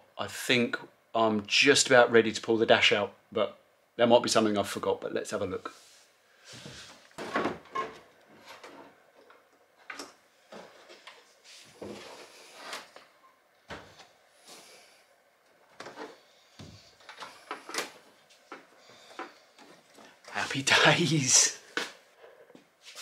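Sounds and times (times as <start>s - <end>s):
soft rubbing and rustling: 10.4s - 13.2s, 21.8s - 23.0s.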